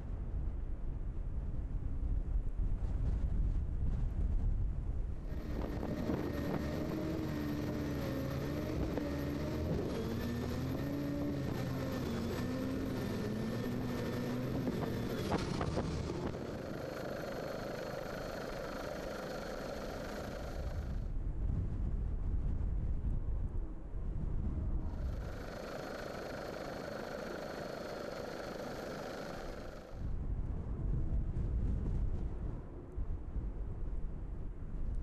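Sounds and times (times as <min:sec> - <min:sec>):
powerboat engines racing: 0:05.3 - 0:20.9.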